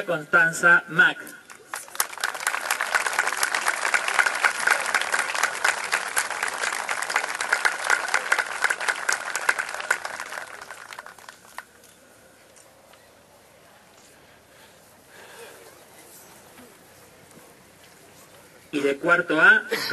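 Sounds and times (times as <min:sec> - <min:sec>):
crowd applauding: 0:01.5 - 0:11.7.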